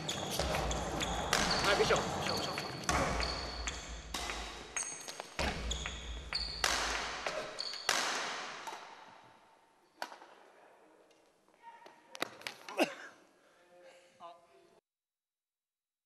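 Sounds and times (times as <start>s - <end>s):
echoing thuds in a sports hall: 0.0s - 9.4s
short high squeaks: 7.5s - 7.9s.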